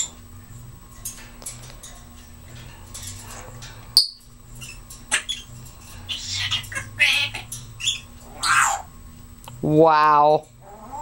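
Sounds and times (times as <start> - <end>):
parrot squawking: 4.0 - 8.9.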